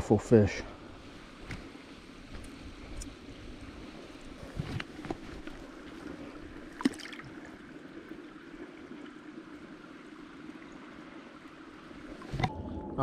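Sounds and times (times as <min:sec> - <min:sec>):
fish splash: 0:06.7 - 0:07.4.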